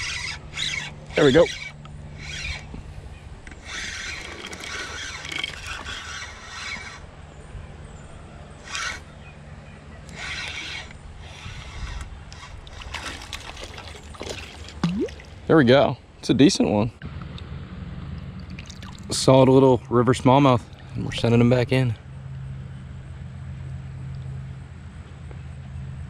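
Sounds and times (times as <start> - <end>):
fishing reel gears whirring: 0.0 - 9.2, 10.0 - 15.0.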